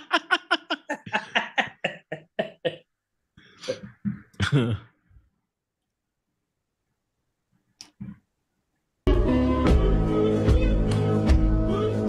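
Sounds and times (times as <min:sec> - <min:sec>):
person laughing heartily: 0:00.0 - 0:02.9, 0:03.7 - 0:04.9
breathy coughing gasps of laughter: 0:00.8 - 0:02.9, 0:03.5 - 0:05.0.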